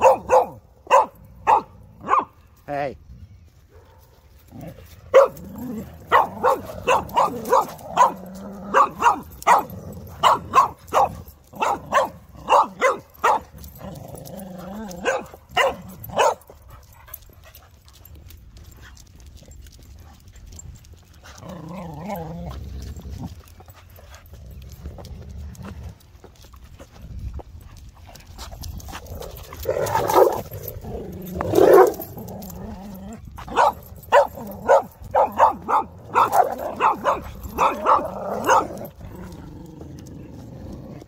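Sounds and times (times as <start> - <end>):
dog barking: 0.0 - 2.3, 5.1 - 5.4, 6.0 - 13.5, 15.0 - 16.5, 33.5 - 38.8.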